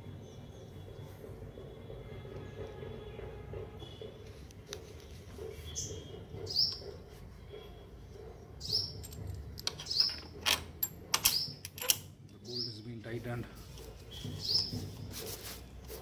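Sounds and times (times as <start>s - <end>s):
small bird chirping: 5.5s - 9.2s, 14.0s - 15.1s.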